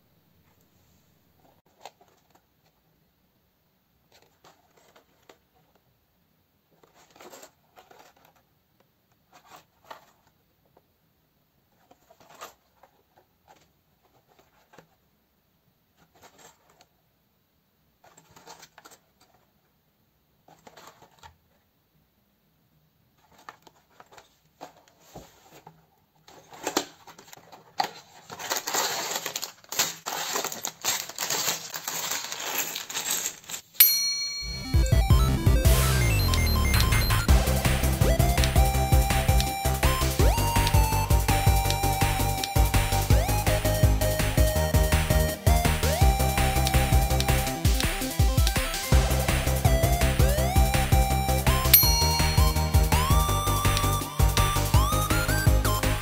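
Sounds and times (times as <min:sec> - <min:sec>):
plastic bags crinkling: 0:26.3 - 0:33.8.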